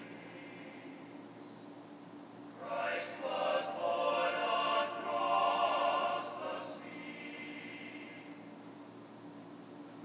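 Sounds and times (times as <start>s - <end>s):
choir singing: 2.6s - 8.4s.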